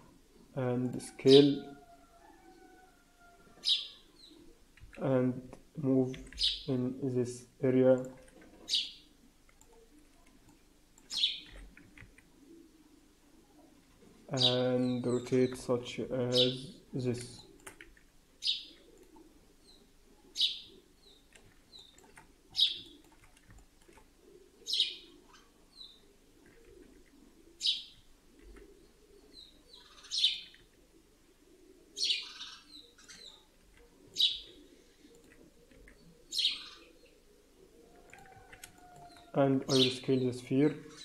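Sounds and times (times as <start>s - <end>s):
bird chirping: 1.2s - 5.1s, 6.2s - 6.9s, 8.1s - 9.9s, 11.0s - 12.7s, 18.4s - 30.8s, 31.9s - 41.0s.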